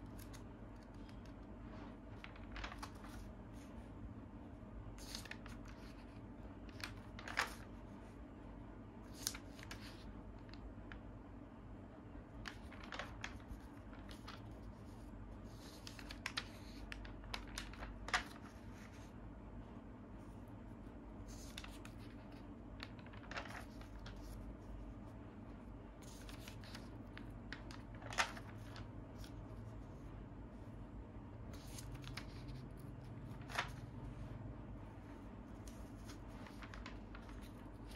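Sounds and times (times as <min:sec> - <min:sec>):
pages rustling and flicking: 0:00.0 - 0:03.8, 0:05.0 - 0:07.8, 0:09.0 - 0:11.1, 0:12.3 - 0:19.1, 0:21.2 - 0:25.1, 0:26.0 - 0:30.0, 0:31.5 - 0:34.2, 0:35.0 - 0:37.9.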